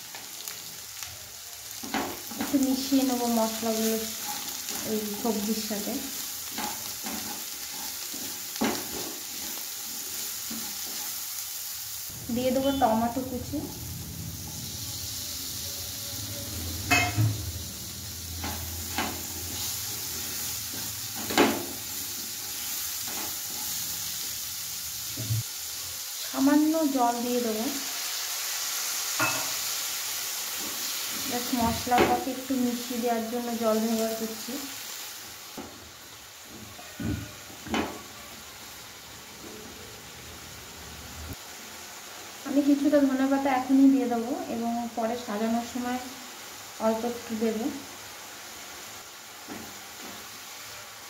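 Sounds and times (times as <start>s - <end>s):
vegetables sizzling in oil: 0.0s - 51.0s
spatula stirring in pan: 3.7s - 11.6s
utensils knocking against pan: 16.9s - 17.4s.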